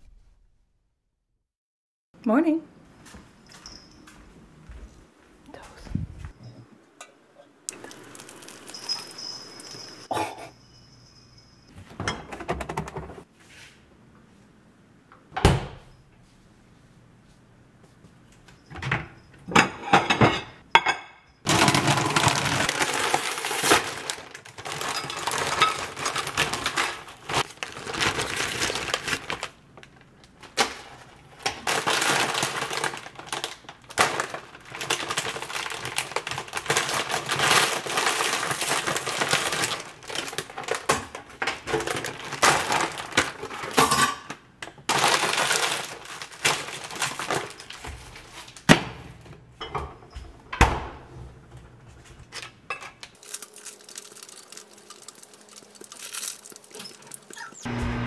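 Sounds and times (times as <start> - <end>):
plastic bag crinkling: 7.7 - 10.1, 21.5 - 43.8, 44.9 - 48.6, 53.1 - 57.6.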